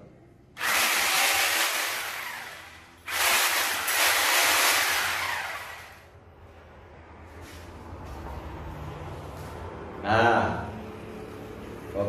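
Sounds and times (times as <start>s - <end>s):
electric drill whirring: 0.6s - 6.1s.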